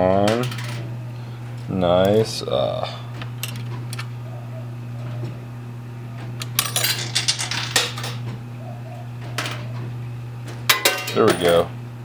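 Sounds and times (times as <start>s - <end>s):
machine low hum: 0.0s - 12.0s
coins clinking and sliding: 6.4s - 8.2s.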